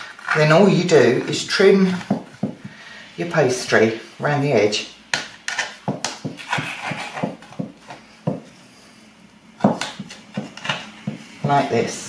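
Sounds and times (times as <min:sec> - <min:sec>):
knife tapping pie tin edge: 0:09.6 - 0:11.6.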